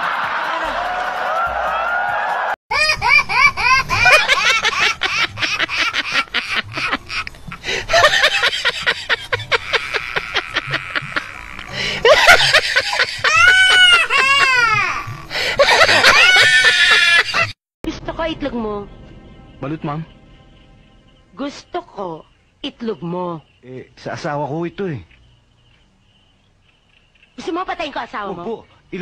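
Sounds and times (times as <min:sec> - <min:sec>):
person laughing high-pitched: 0:02.7 - 0:17.5
drawn-out cries: 0:02.7 - 0:17.6.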